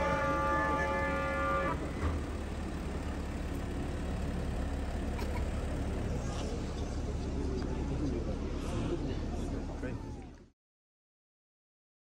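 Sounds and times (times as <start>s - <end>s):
horn-like pitched tone: 0.0s - 2.0s
slow car engine rumble: 0.0s - 10.6s.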